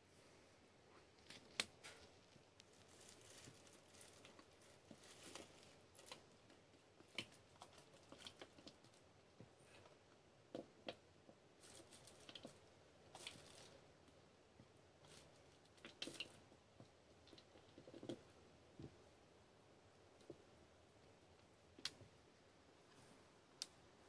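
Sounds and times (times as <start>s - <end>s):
small clicks and crackles: 1.2s - 14.2s, 15.0s - 19.0s, 21.0s - 22.1s.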